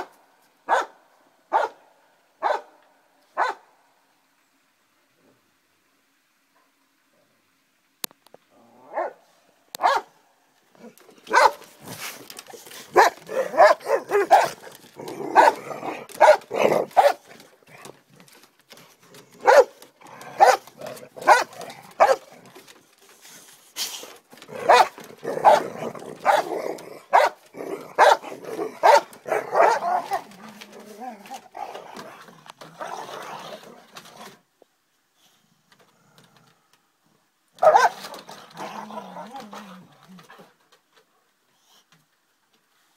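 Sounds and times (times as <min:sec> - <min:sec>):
dogs barking: 0:00.7 - 0:01.8, 0:02.4 - 0:02.8, 0:03.4 - 0:03.6, 0:09.8 - 0:10.2, 0:11.3 - 0:11.7, 0:12.9 - 0:17.3, 0:19.4 - 0:22.3, 0:24.5 - 0:30.3, 0:37.6 - 0:38.1.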